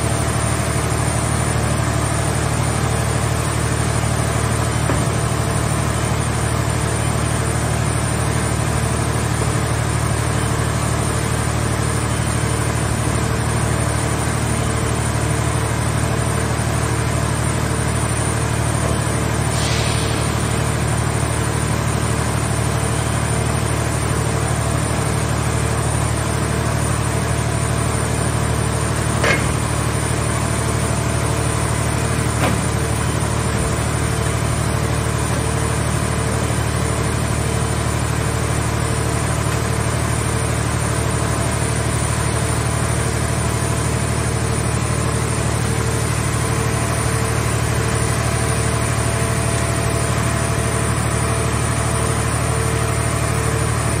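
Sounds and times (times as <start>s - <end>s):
power unit humming: 23.8s - 47.6s
brief knocks: 29.2s - 29.7s.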